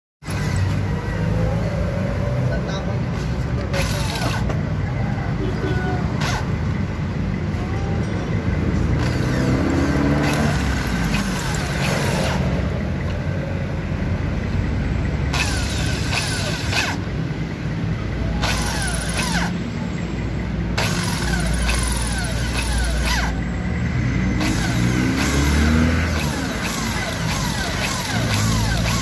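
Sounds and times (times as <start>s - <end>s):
power tool bursts: 15.3s - 17.1s, 18.4s - 19.5s, 20.8s - 23.4s, 24.4s - 29.0s.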